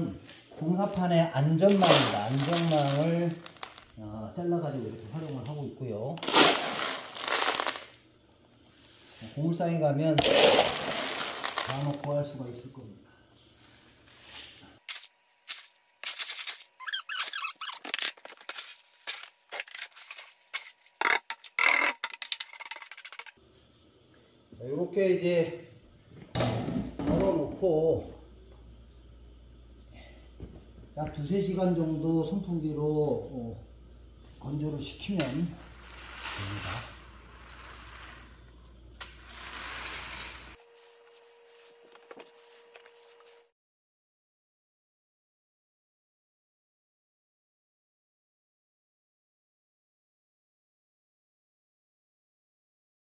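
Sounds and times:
electric fan hum: 0:00.0 - 0:16.8, 0:17.4 - 0:43.5
beans pouring onto mesh net: 0:01.7 - 0:03.9, 0:06.2 - 0:08.0, 0:10.2 - 0:12.1.

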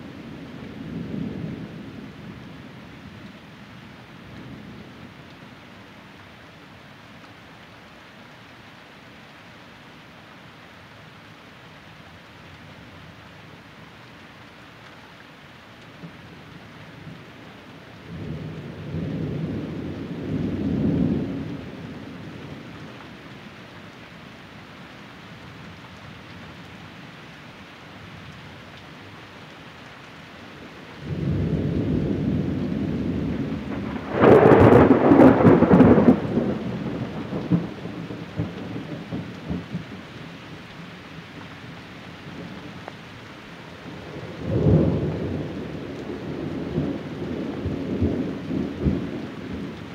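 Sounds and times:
steady rain: 0:00.0 - 0:49.9
thunder rumbling: 0:31.0 - 0:39.9, 0:43.8 - 0:49.9.

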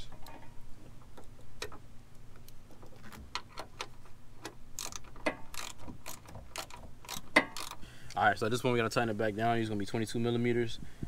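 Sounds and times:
hand ratchet clicking: 0:02.8 - 0:07.8.

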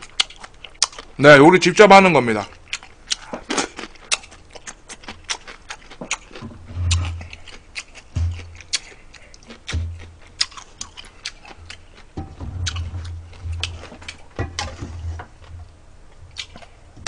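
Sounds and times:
chewing and lip-smacking: 0:00.0 - 0:01.2, 0:02.5 - 0:14.3, 0:16.2 - 0:16.8
dull low thuds: 0:06.4 - 0:07.4, 0:08.1 - 0:08.8, 0:09.7 - 0:10.3, 0:11.6 - 0:15.9.

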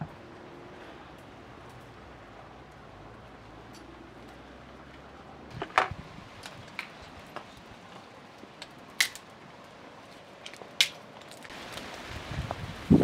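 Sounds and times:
embers crackling and snapping: 0:00.0 - 0:13.0.

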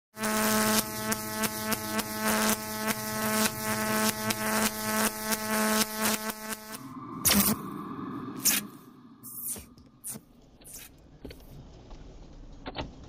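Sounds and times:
stuttering electric buzz: 0:00.1 - 0:07.7, 0:08.3 - 0:11.0.

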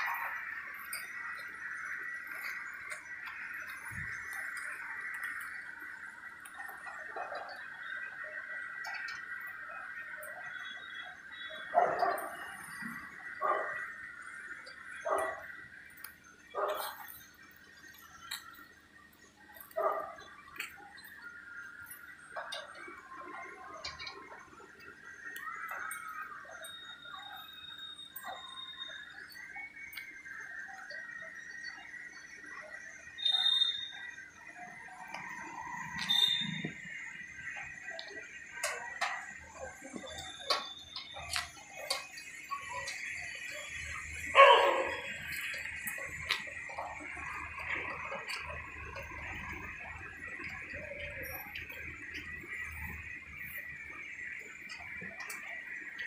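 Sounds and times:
light clicks and ticks: 0:45.0 - 0:56.0.

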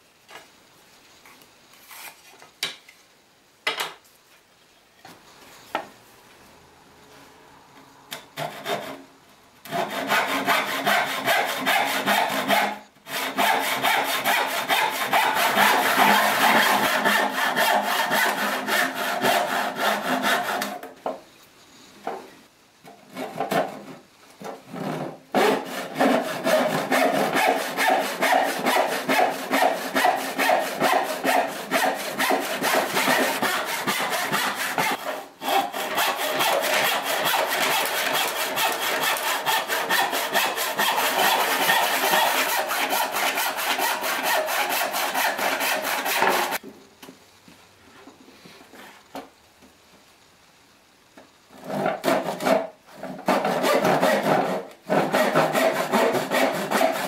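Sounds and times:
handsaw cutting wood: 0:08.4 - 0:09.0, 0:09.7 - 0:20.9, 0:24.7 - 0:46.6, 0:51.6 - 0:57.0.

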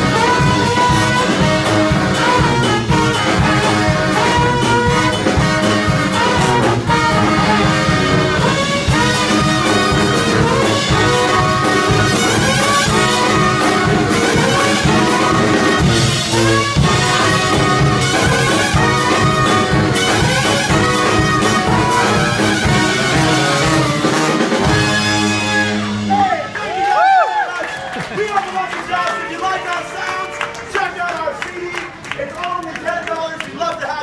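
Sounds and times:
sliding horn notes: 0:00.0 - 0:26.5
steady drum beat: 0:00.0 - 0:26.9
brass band playing upbeat tune: 0:00.0 - 0:27.4.

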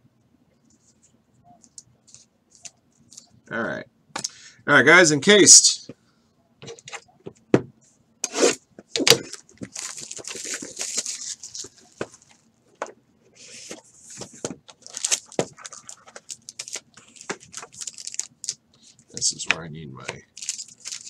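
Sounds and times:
foil wrapping rustling: 0:09.0 - 0:12.4, 0:13.4 - 0:19.4, 0:20.3 - 0:21.0.

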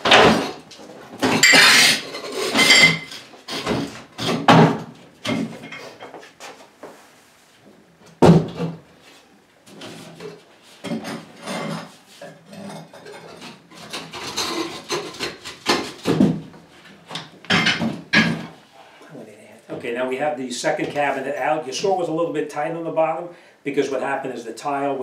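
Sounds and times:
wooden cabinet knocking and creaking: 0:03.0 - 0:05.6, 0:08.2 - 0:08.8, 0:15.6 - 0:16.5.

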